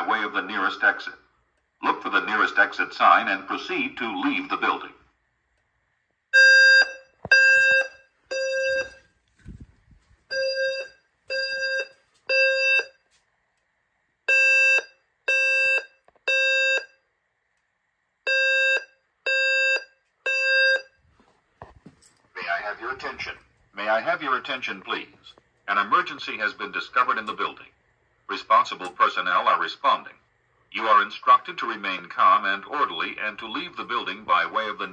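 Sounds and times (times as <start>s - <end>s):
low buzzy alarm tone beeping: 6.3s - 9.1s, 10.3s - 13.0s, 14.3s - 17.0s, 18.3s - 21.0s.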